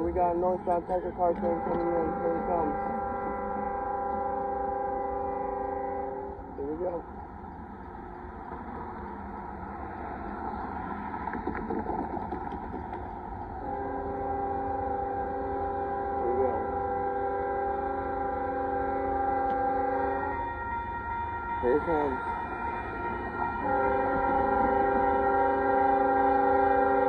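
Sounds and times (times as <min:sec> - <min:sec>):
freight locomotive horn blast: 0:00.7 - 0:07.0, 0:13.6 - 0:27.0
rough background rumble: 0:06.3 - 0:15.7.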